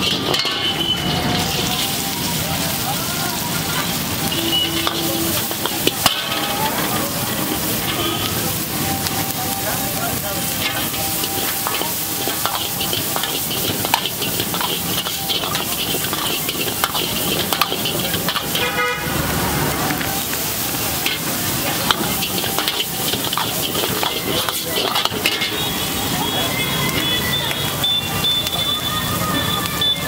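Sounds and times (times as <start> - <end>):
metal ladle scraping a wok: 0.0 - 2.2, 4.0 - 9.2, 10.1 - 26.1
cabbage sizzling in a wok: 0.0 - 30.0
horn honk: 0.4 - 1.8, 3.9 - 6.9, 7.5 - 8.6, 18.4 - 19.4.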